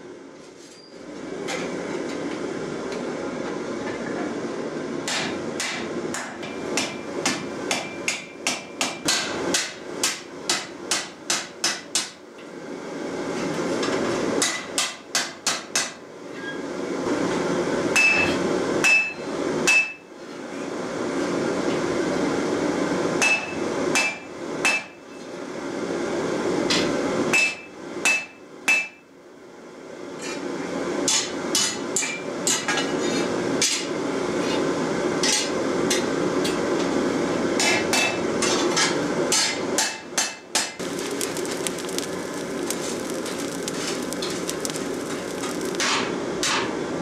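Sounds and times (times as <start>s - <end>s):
hammer striking hot iron on anvil: 5.1s - 12.2s, 14.4s - 16.0s, 18.8s - 20.0s, 24.0s - 25.0s, 27.4s - 29.0s, 39.4s - 43.6s
steady rushing noise: 40.8s - 45.8s.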